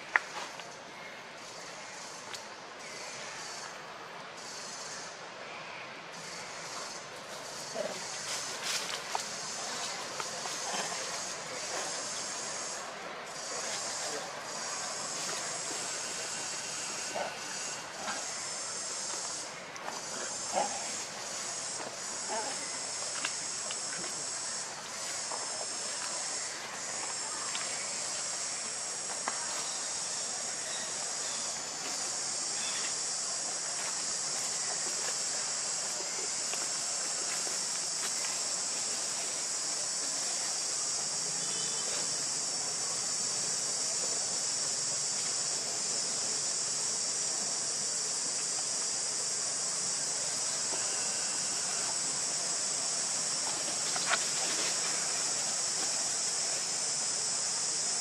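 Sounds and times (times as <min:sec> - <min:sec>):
high-pitched insect chorus: 0:00.0 - 0:58.0
faint clicks: 0:02.3 - 0:02.5.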